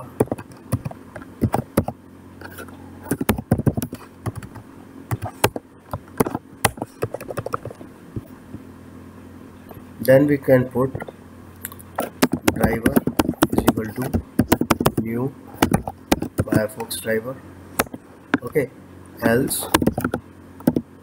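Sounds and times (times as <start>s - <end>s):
typing on keyboard: 0.2s - 2.0s, 3.1s - 5.6s, 6.2s - 7.8s, 12.2s - 16.7s, 19.7s - 20.8s.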